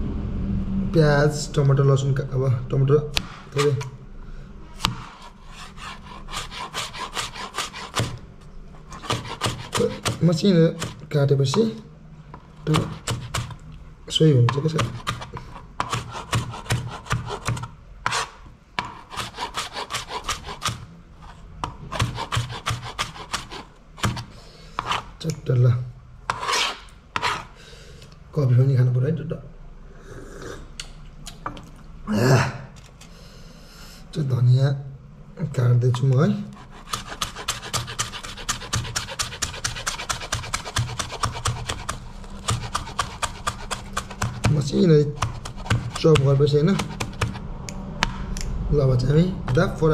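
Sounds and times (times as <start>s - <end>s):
knife chopping on plastic board: 4.8s - 8.2s, 8.9s - 11.7s, 12.6s - 13.6s, 14.4s - 20.9s, 21.6s - 25.0s, 36.5s - 47.4s.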